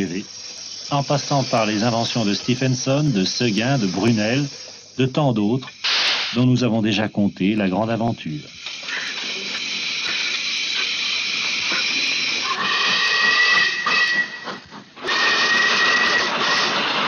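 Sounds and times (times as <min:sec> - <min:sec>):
steam locomotive hissing: 0:00.0 - 0:17.0
steam whistle blowing: 0:08.8 - 0:17.0.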